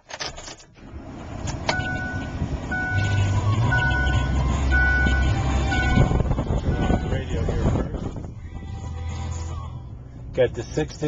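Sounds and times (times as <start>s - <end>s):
truck engine starting and idling: 0.0s - 11.0s
high beeping tone: 1.7s - 7.2s.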